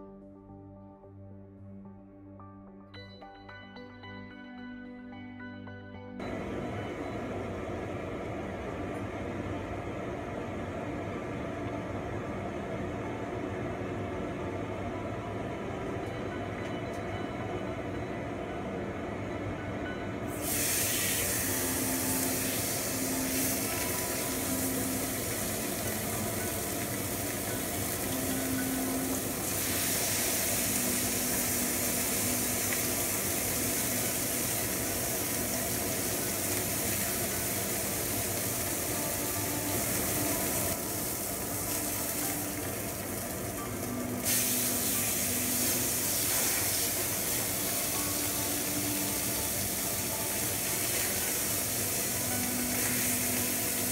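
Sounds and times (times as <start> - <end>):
steak sizzling on griddle: 20.4 - 53.9.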